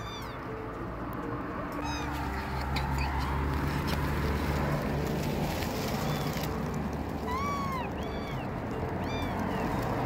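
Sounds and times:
kitten mewing: 7.2 - 10.0.

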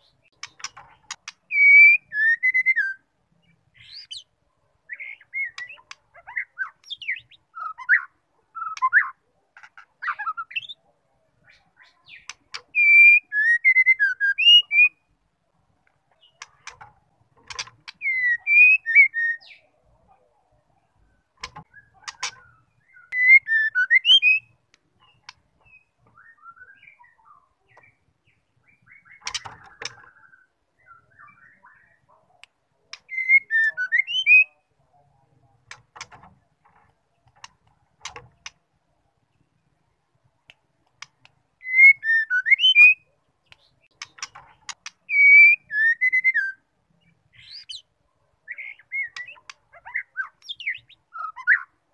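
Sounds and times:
bird singing whistled phrases: 1.5 - 3.0, 12.2 - 15.0, 18.0 - 19.6, 22.8 - 24.5, 25.7 - 27.4, 33.1 - 34.6, 41.6 - 43.1, 45.1 - 46.6, 50.0 - 51.7
faint clicks: 35.6 - 38.6.

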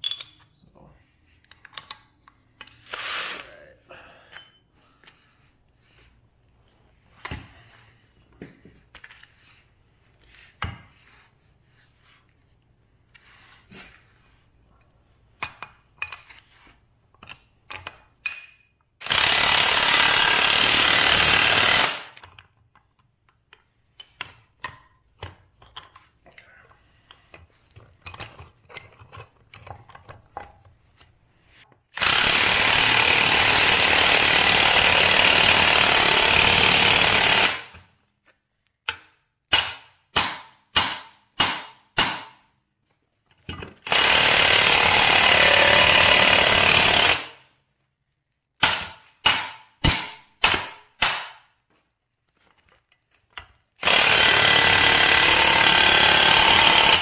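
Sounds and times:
impact wrench hammering: 17.7 - 22.3, 32.0 - 37.8, 38.8 - 42.4, 43.6 - 47.4, 48.6 - 51.5, 53.8 - 57.0.

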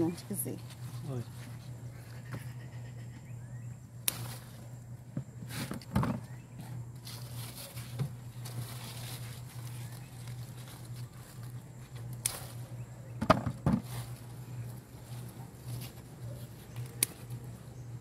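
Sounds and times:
garden plants rustling: 0.0 - 18.0
sharp snaps and knocks: 4.0 - 4.4, 16.7 - 17.4.

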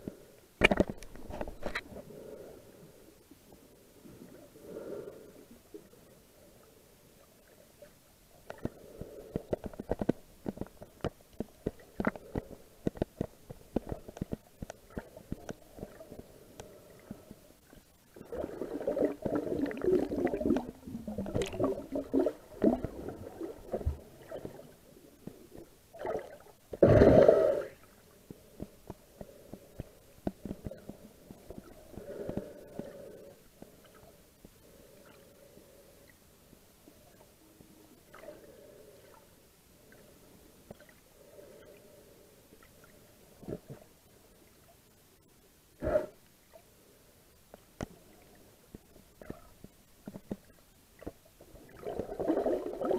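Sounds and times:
underwater clicks and crackles: 0.0 - 2.1, 7.5 - 35.3, 39.9 - 41.0, 42.6 - 44.0, 47.4 - 52.9
gurgling water: 18.1 - 28.7, 49.2 - 52.9.

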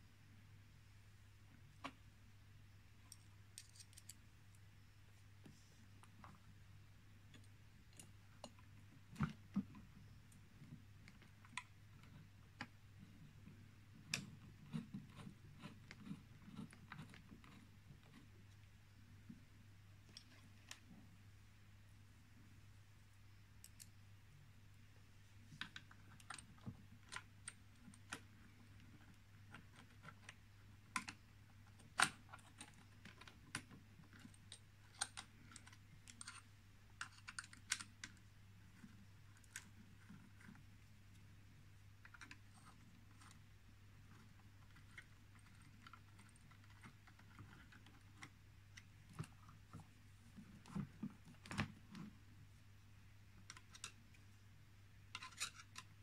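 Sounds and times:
low steady hum: 0.0 - 56.0
metal parts clicking and tapping: 3.1 - 4.2.

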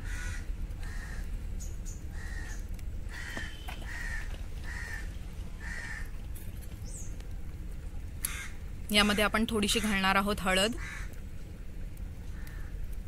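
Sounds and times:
crow cawing: 0.0 - 1.3, 2.1 - 6.1, 8.2 - 8.6, 9.7 - 10.0, 10.8 - 11.2, 12.4 - 12.8
low background rumble: 0.0 - 13.0.

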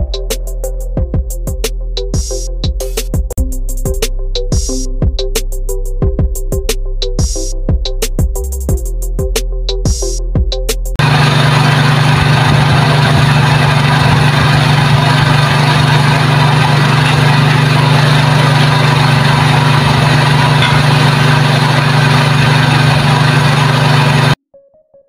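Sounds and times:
concrete mixer running: 11.0 - 24.4.

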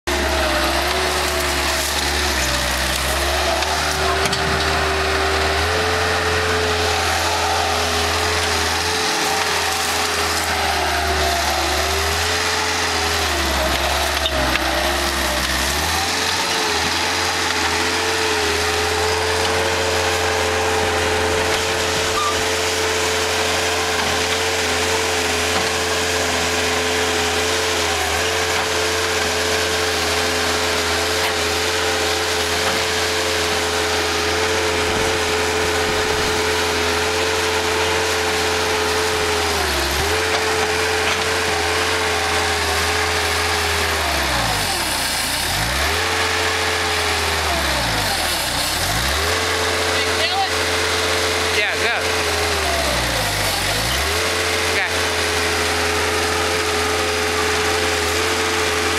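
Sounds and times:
diesel loader engine whining: 0.0 - 58.9.

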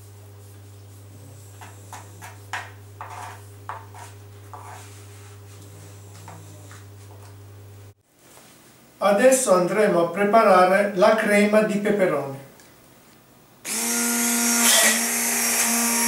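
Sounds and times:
steady low hum: 0.0 - 11.2
knife cutting on wooden board: 1.5 - 4.9.

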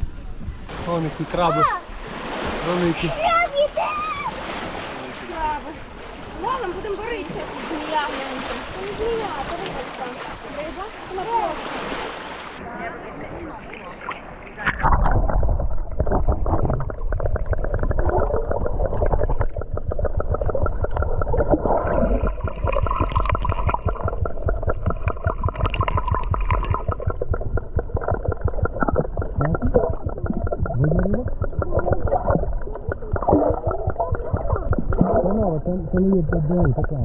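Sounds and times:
muffled water sloshing: 13.6 - 37.0
heavy low rumble: 14.8 - 37.0.

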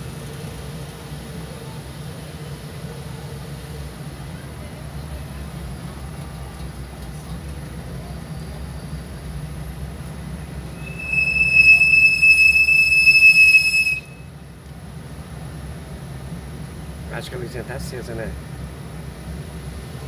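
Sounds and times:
high-pitched squeal: 10.8 - 14.2.

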